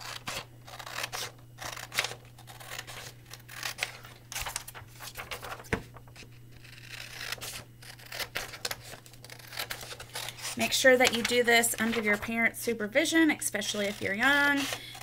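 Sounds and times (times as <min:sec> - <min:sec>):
scissors snipping paper: 0:00.0 - 0:05.6, 0:06.6 - 0:12.3, 0:13.6 - 0:15.0
paper rustling: 0:01.9 - 0:06.4, 0:08.3 - 0:12.4.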